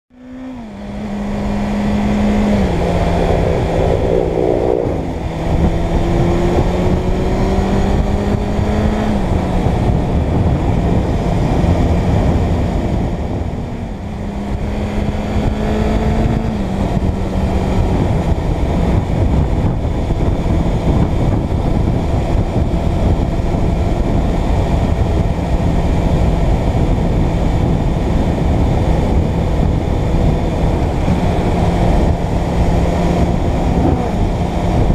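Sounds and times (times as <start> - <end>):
wind rushing over microphone: 0.7 - 34.9.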